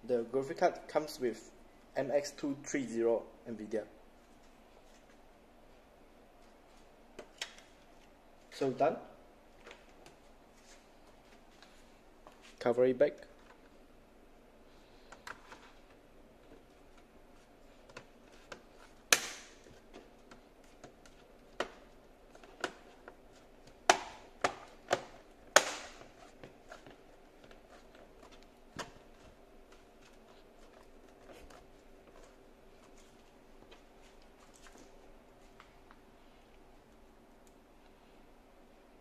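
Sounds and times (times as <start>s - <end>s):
plastic clips snapping into place: 19.1s - 19.6s, 23.9s - 26.1s.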